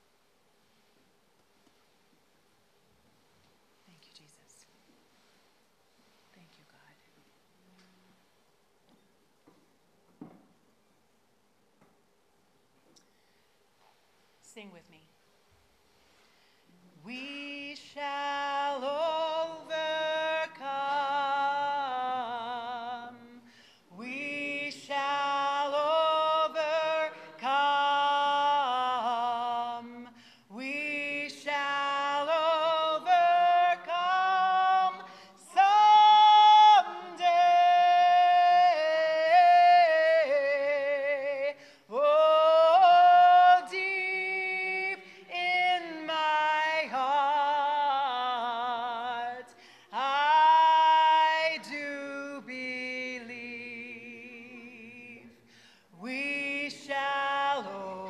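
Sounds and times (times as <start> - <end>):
congregation singing: 17.1 - 55.4, 56.0 - 58.0
woman singing into microphone: 24.0 - 55.4.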